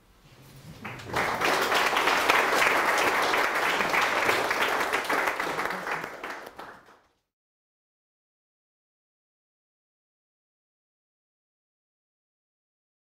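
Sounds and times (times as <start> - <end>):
audience applauding: 0.7 - 7.2.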